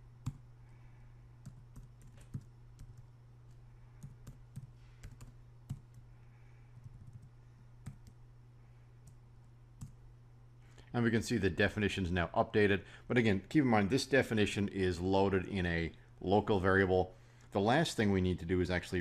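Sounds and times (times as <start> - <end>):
steady low hum: 0.0 - 19.0
typing on keyboard: 1.4 - 3.1, 4.0 - 6.0, 6.8 - 8.2.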